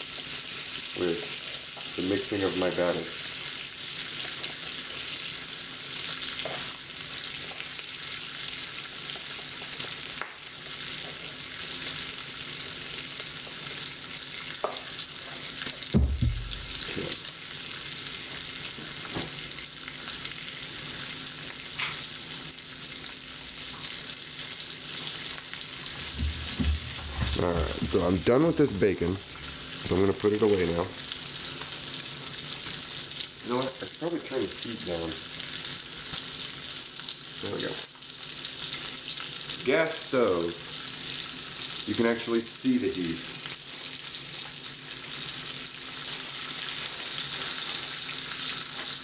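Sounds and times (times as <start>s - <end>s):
bacon sizzling in a frying pan: 0.0s - 49.0s
knocks: 16.0s - 16.8s.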